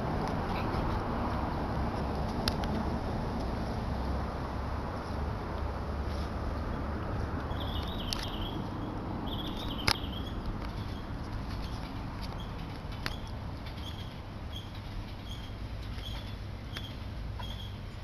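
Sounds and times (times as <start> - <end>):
steady low rumble: 0.0 - 18.0.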